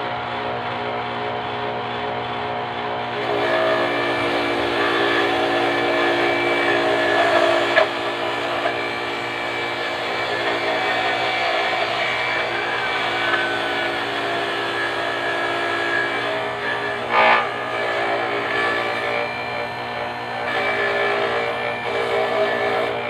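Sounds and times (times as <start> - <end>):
electric grater whining: 0.0 - 23.0.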